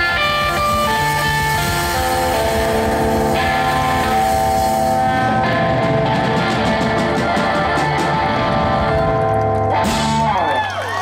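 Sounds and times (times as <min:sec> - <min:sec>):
blues harmonica: 0:00.0 - 0:06.5
electric blues band playing: 0:00.0 - 0:11.0.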